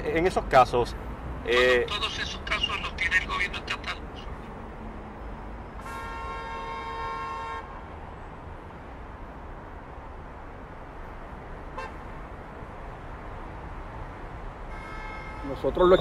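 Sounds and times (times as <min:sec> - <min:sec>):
road traffic noise: 0:00.0 - 0:16.0
car horn honking: 0:05.8 - 0:07.8, 0:11.8 - 0:12.0, 0:14.7 - 0:16.0.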